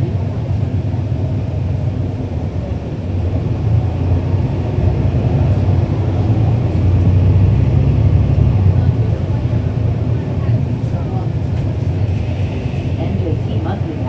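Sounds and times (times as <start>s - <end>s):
bus diesel engine running: 0.0s - 14.0s.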